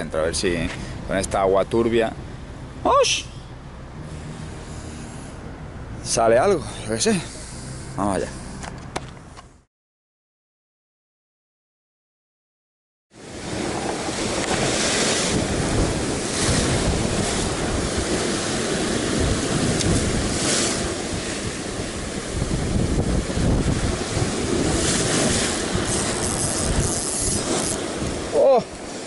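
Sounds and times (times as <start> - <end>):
surf breaking over rocks: 13.2 - 29.0
wind rumbling on microphone: 13.2 - 29.0.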